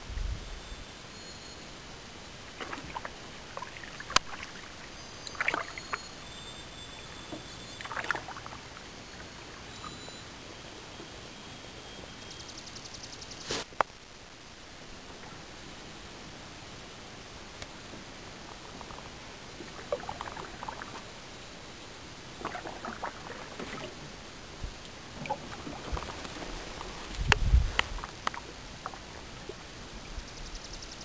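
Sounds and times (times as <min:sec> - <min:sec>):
steady hiss: 0:00.0 - 0:31.0
paddle dipping in water: 0:02.5 - 0:06.2, 0:06.8 - 0:10.0, 0:18.0 - 0:21.2, 0:22.4 - 0:24.1, 0:24.9 - 0:29.6.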